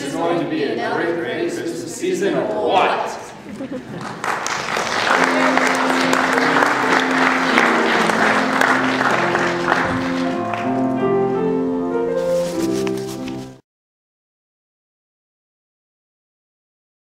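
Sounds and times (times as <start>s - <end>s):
audience applauding: 3.7s - 11.0s
instrumental keyboard music: 5.0s - 13.6s.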